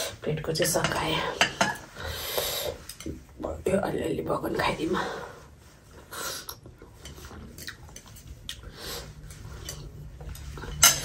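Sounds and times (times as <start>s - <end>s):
wet chewing: 6.5s - 8.7s.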